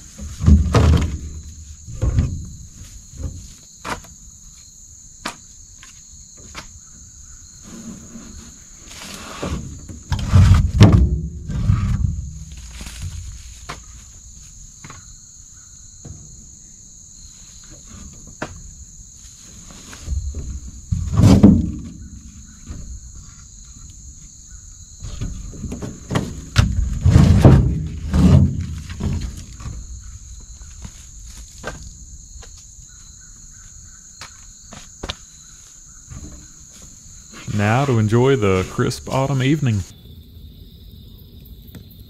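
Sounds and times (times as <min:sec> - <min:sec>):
knocks and thumps: 0:00.0 - 0:04.1, 0:09.5 - 0:14.0, 0:20.0 - 0:23.2, 0:25.0 - 0:32.5
insect chorus chirring: 0:00.0 - 0:42.0.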